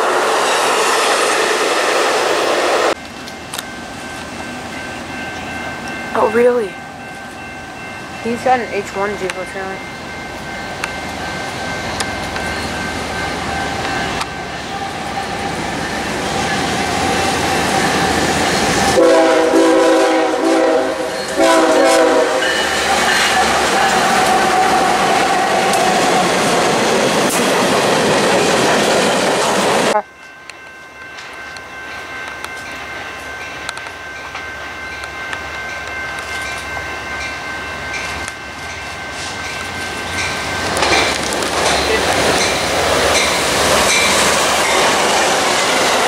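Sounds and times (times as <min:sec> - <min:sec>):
steel wheels on rails: 0:00.0 - 0:46.0
train rumbling: 0:00.0 - 0:46.0
level crossing bells ringing: 0:03.0 - 0:18.7, 0:29.9 - 0:44.9
locomotive air horn blasts: 0:19.0 - 0:22.6.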